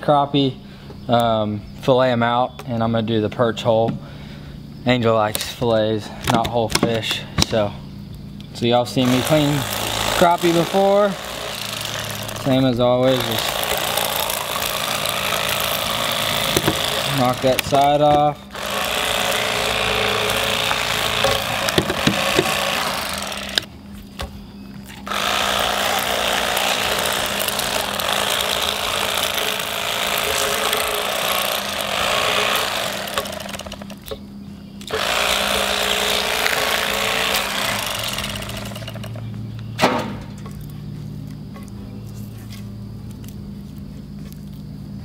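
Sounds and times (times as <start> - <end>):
electric knife blades buzzing: 8.8 - 23.7, 24.9 - 40.6.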